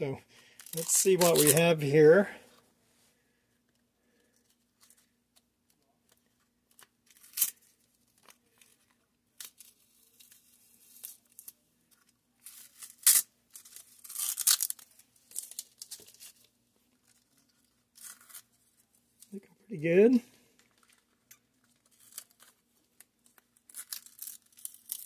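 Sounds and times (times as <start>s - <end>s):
loose tape crinkling: 0.4s - 2.1s, 3.7s - 19.4s, 20.0s - 25.0s
masking tape ripping off: 0.6s - 1.6s, 7.1s - 7.7s, 12.5s - 16.4s, 17.9s - 18.5s, 23.6s - 25.0s.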